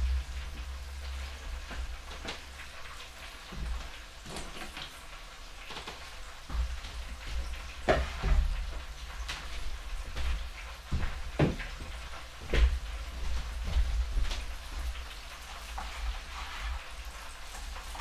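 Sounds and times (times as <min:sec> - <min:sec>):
oil sizzling in deep fryer: 0:00.0 - 0:18.0
knocks on wooden cutting board: 0:07.9 - 0:08.5, 0:11.0 - 0:11.7.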